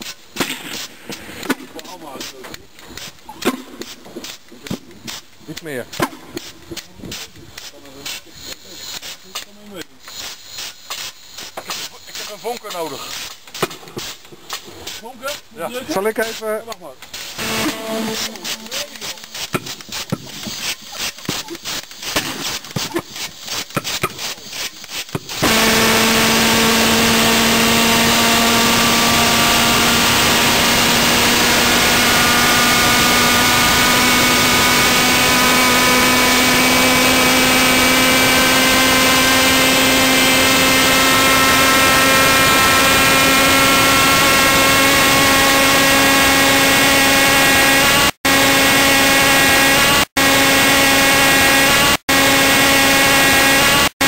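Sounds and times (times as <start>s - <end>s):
pulse jet engine buzzing drone: 17.4s - 19.0s, 25.4s - 54.0s.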